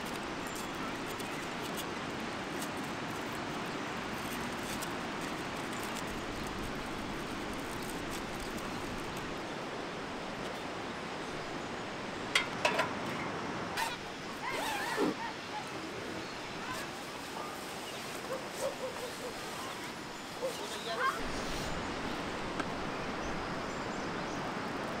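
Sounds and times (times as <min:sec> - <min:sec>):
fast river rushing: 0:01.9 - 0:25.0.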